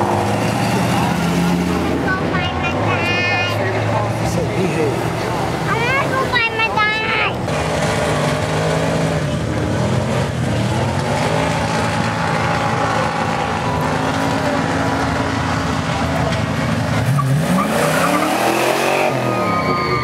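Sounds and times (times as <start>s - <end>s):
car engine revving: 0.0s - 20.0s
tyre squeal: 17.0s - 20.0s.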